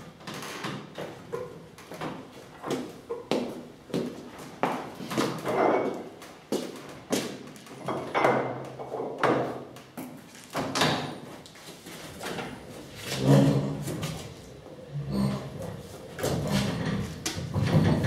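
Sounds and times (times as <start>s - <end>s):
wooden knocks and scrapes: 15.7s - 18.0s.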